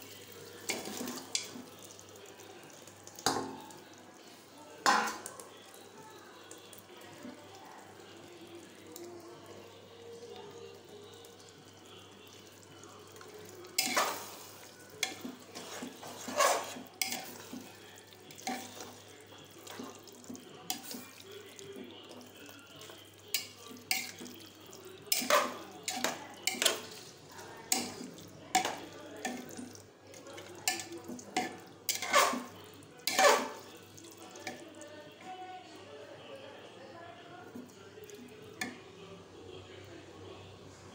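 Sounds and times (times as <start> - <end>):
spoon scraping metal pot: 13.8 - 14.3, 15.0 - 17.6, 25.1 - 27.1, 30.7 - 33.7.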